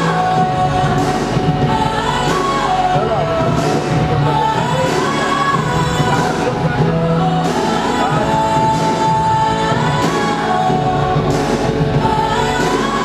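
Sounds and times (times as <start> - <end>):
loud music with singing: 0.0 - 13.0.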